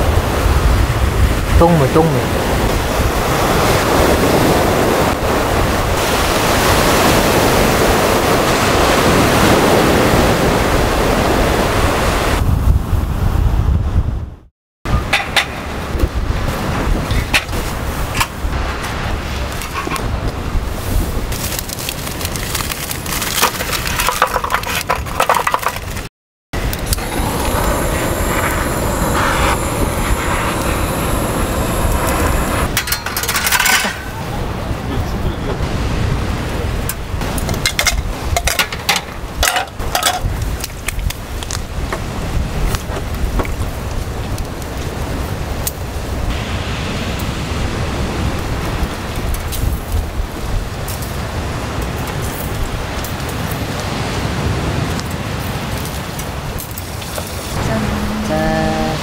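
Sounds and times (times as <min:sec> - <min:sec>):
waves breaking on sand: 0:00.0 - 0:13.2, 0:15.5 - 0:23.4, 0:33.9 - 0:38.4, 0:39.1 - 0:59.0
wind buffeting microphone: 0:00.0 - 0:22.4, 0:23.4 - 0:59.0
gas torch lighter jet hissing: 0:26.6 - 0:32.8
metal grill grate clicks and rattles: 0:32.7 - 0:34.1.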